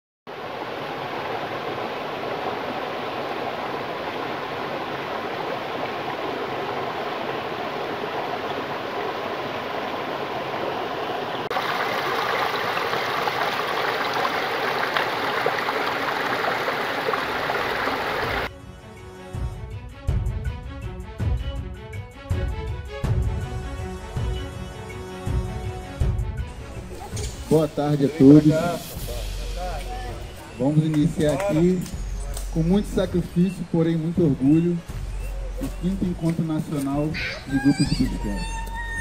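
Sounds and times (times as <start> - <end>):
stream flowing over rocks: 0.3 - 18.5.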